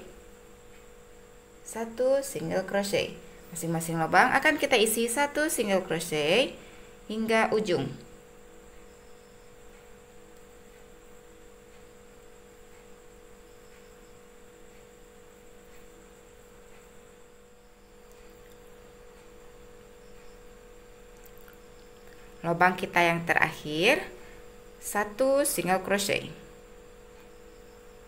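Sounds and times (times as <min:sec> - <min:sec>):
electrical hum: 0:00.0 - 0:28.0
faint hiss: 0:00.0 - 0:28.0
faint ticks: 0:00.6 - 0:01.1, 0:08.7 - 0:17.2, 0:27.0 - 0:28.0.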